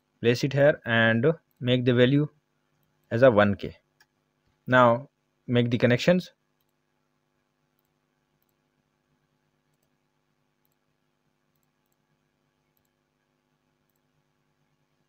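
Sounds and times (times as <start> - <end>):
faint steady hum: 0.0 - 15.0
faint mouse clicks: 6.6 - 6.8, 7.7 - 8.6, 9.6 - 10.0, 10.6 - 10.9, 11.5 - 13.0, 13.8 - 14.2.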